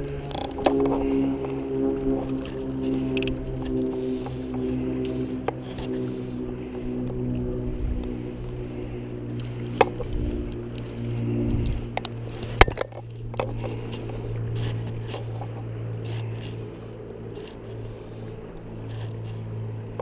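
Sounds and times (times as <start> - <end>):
fly line scraping: 0.0 - 20.0
steady low hum: 0.0 - 20.0.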